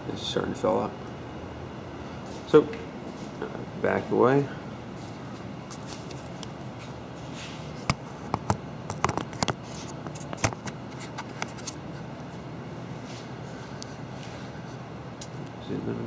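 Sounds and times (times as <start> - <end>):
low room hum: 0.0 - 16.0
camera handling clicks and scrapes: 7.9 - 11.8.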